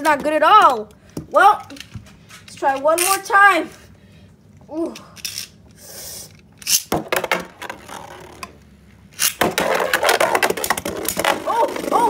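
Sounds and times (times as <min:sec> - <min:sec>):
spinning tops clicking and scraping: 0:01.6 - 0:03.4, 0:05.2 - 0:06.9.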